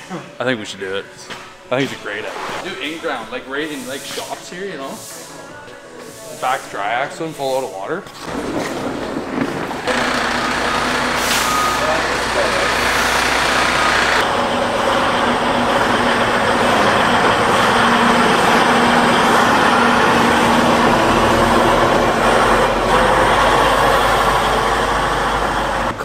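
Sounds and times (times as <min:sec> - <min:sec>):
tyres on gravel road noise: 0:08.1 - 0:26.0
diesel truck engine running: 0:08.3 - 0:26.0.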